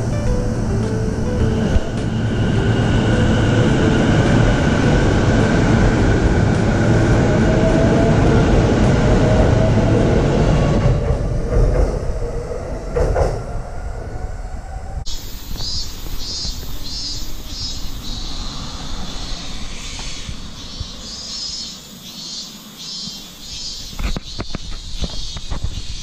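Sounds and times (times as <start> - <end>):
electric train motor whine: 0.0 - 10.5
train wheels rumbling over rails: 0.0 - 21.5.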